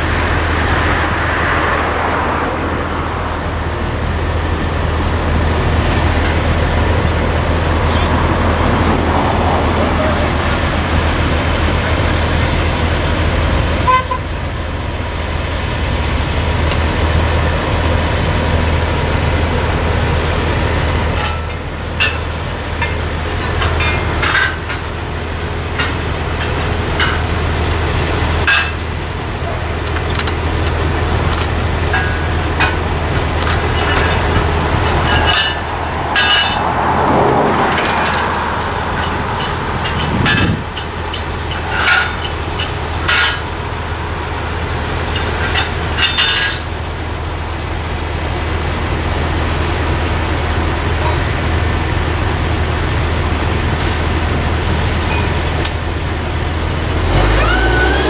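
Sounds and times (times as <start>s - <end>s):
diesel engine humming: 0.0s - 58.0s
rigging hardware clanking: 20.9s - 25.0s, 25.7s - 36.9s, 37.6s - 43.6s, 45.0s - 46.8s.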